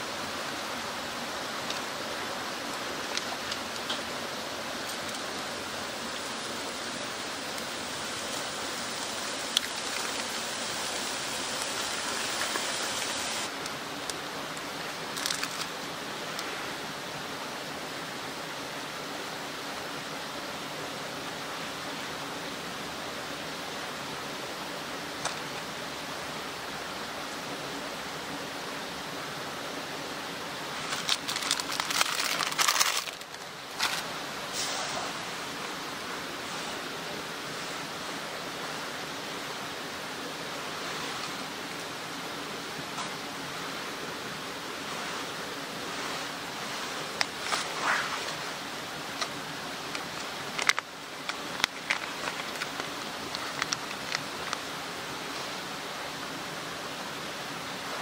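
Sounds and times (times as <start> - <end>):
steady rushing hiss: 0.0 - 58.0
plastic packaging crinkling: 15.2 - 15.7, 30.8 - 34.1, 50.5 - 54.6.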